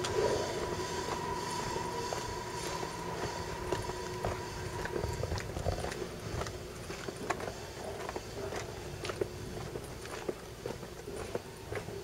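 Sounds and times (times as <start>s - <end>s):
low rumble: 0.0s - 6.9s
faint steady tone: 0.0s - 12.0s
footsteps crunching outdoors: 0.0s - 12.0s.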